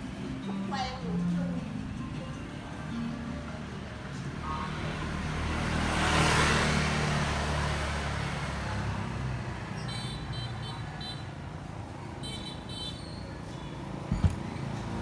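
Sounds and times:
vehicle engine passing: 0:03.5 - 0:09.8.

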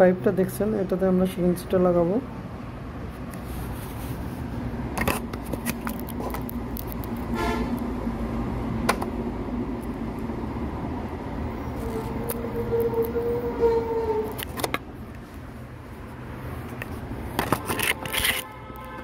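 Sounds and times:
road traffic hum: 0:00.0 - 0:19.0
vehicle horn toot: 0:07.3 - 0:07.8, 0:11.8 - 0:14.3, 0:18.2 - 0:19.0.

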